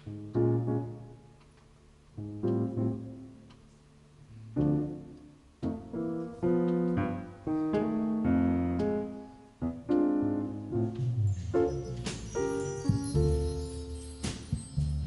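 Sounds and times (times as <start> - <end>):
jazz piano ballad: 0.0 - 15.0.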